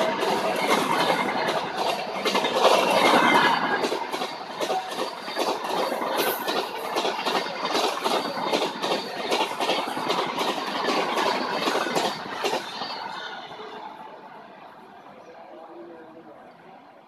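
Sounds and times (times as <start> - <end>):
train wheels clattering over rails: 0.0 - 13.4.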